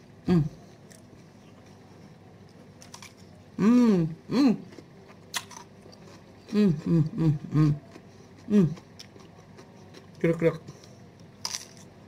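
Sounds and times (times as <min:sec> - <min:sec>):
woman humming: 0:00.2 - 0:00.6, 0:03.6 - 0:04.7, 0:06.5 - 0:07.9, 0:08.5 - 0:08.8
woman chewing cucumber: 0:04.0 - 0:12.0.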